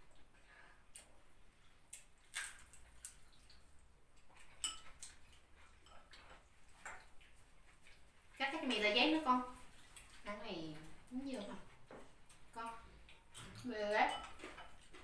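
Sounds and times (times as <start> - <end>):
cutlery clinking on plates: 4.4 - 6.5, 13.4 - 15.0.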